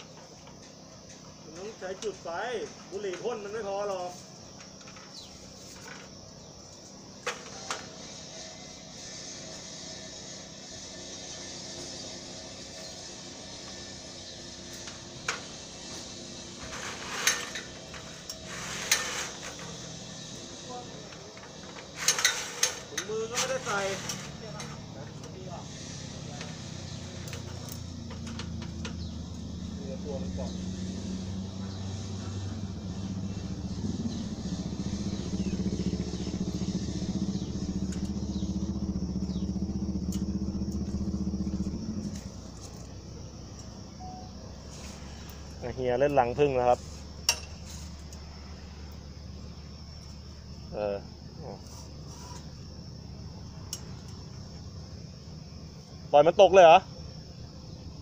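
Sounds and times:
small engine running: 0:07.0 - 0:55.1
ladder scraping: 0:14.7 - 0:29.0.

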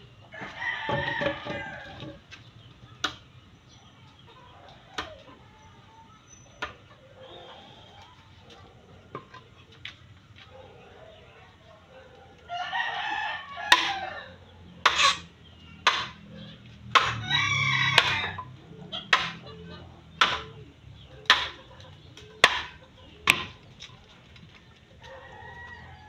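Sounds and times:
rooster crowing: 0:00.3 - 0:02.2, 0:12.4 - 0:14.5, 0:17.0 - 0:18.6, 0:25.0 - 0:26.0
knife chopping bamboo: 0:13.7 - 0:14.0, 0:15.9 - 0:16.2, 0:16.9 - 0:17.2, 0:19.1 - 0:19.4, 0:20.2 - 0:20.5, 0:21.3 - 0:21.6, 0:22.4 - 0:23.6.

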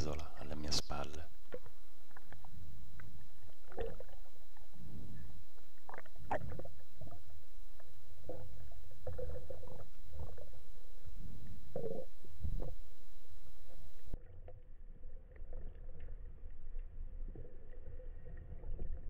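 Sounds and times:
water sloshing and gurgling: 0:01.2 - 0:16.1.

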